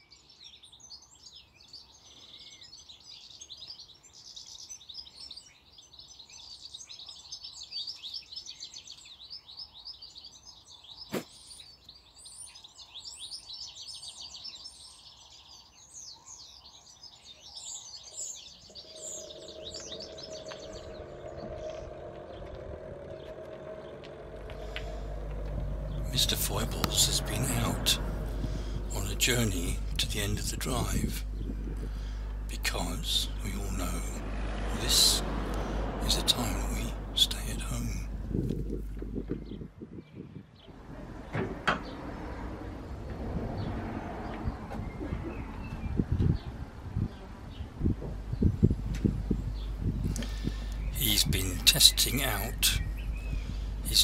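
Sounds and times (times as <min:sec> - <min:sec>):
birds chirping and trilling: 0:00.0 - 0:54.0
low steady hum: 0:18.6 - 0:39.6, 0:48.2 - 0:54.0.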